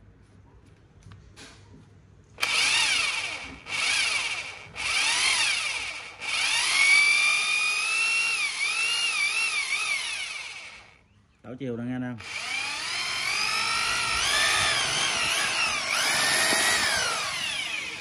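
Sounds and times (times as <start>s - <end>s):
rotary hammer drill motor whine: 2.4s - 11.0s, 12.2s - 18.0s.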